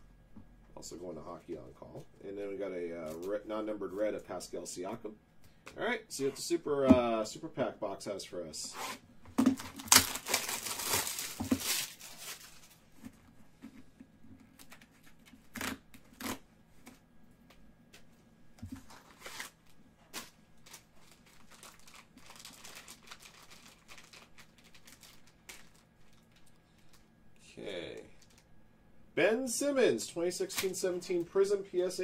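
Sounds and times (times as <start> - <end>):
plastic wrapper crinkling: 9.5 - 12.9, 18.7 - 27.1, 28.2 - 28.5.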